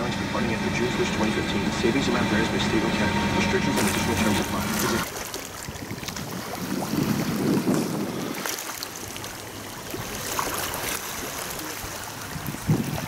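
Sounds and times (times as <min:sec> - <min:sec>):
floodwater lapping: 0:00.0 - 0:13.0
wind buffeting the microphone: 0:05.5 - 0:08.6, 0:11.8 - 0:13.0.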